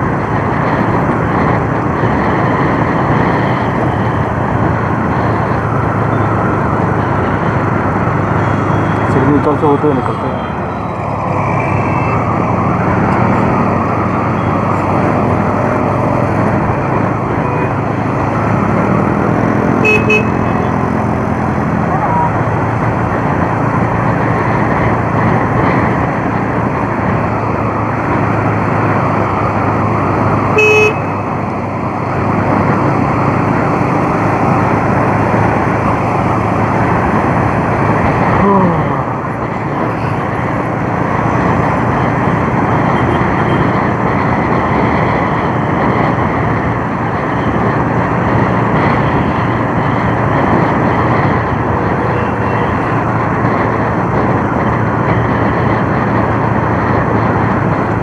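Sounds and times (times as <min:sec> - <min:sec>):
traffic: 0:00.0 - 0:58.0
wind and road noise: 0:00.0 - 0:58.0
horn toot: 0:19.8 - 0:20.5, 0:30.6 - 0:31.1.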